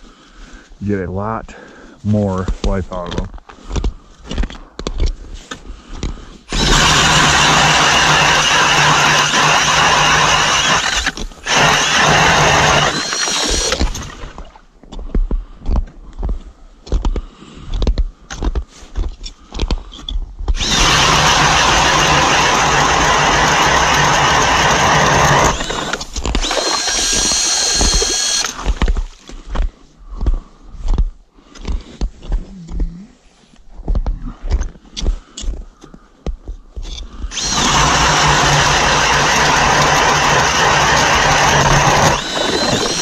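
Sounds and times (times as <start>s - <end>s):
drill motor whine: 6.5s - 14.2s, 20.6s - 28.9s, 37.3s - 43.0s
drill auger grinding through ice: 6.5s - 14.4s, 20.5s - 29.1s, 36.9s - 43.0s.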